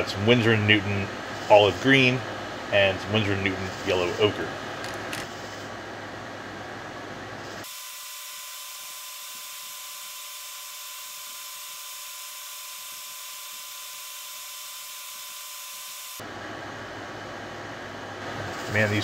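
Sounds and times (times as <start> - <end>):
high-pitched whirring hiss: 0.0 - 5.8, 18.3 - 19.0.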